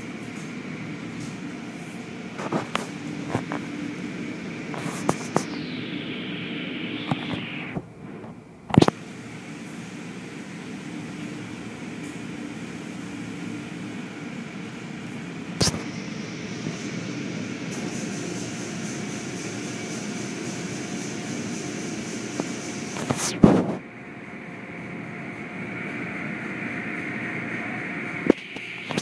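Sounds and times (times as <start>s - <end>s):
car wash machinery running: 0.0s - 29.0s
steady hum: 0.0s - 29.0s
spraying water: 15.6s - 23.4s.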